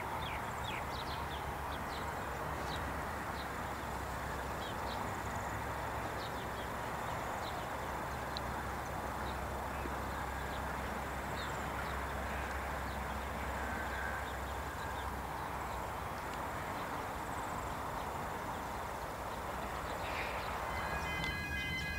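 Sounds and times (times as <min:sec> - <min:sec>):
high bird chirps: 0:20.1 - 0:21.9.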